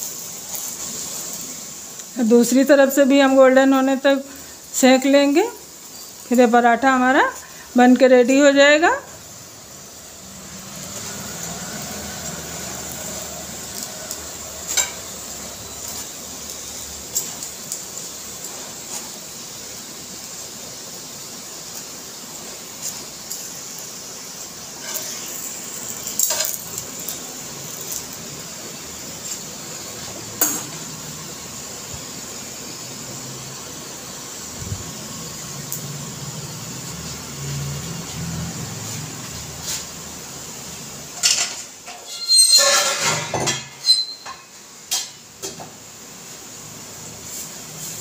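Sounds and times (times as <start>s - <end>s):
flatbread sizzling in oil: 0.0s - 48.0s.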